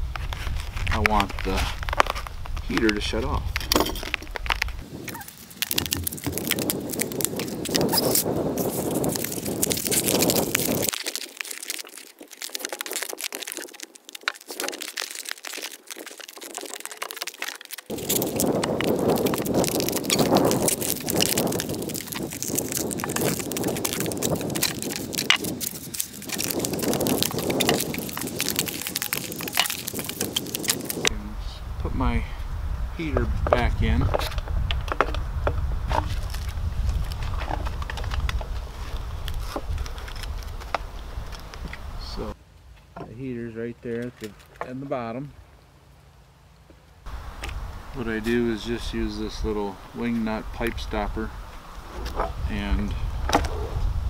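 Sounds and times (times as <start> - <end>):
foam insulation crinkling: 0.0 - 31.1, 35.9 - 42.8
steady low rumble: 17.9 - 43.9.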